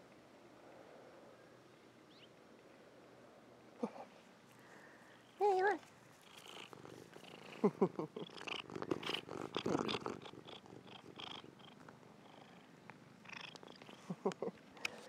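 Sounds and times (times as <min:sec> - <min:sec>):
cat purring: 0:05.3 - 0:14.6.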